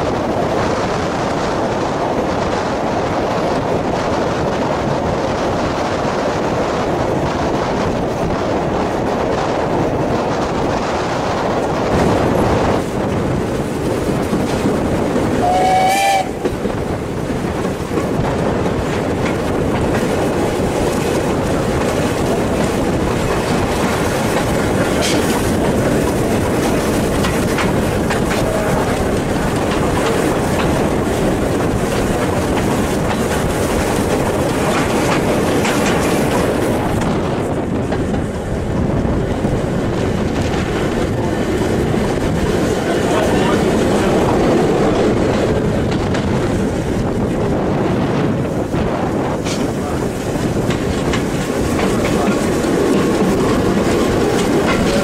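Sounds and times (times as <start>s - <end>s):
train wheel and track noise: 0.0s - 55.0s
steam locomotive whistle: 15.4s - 16.4s.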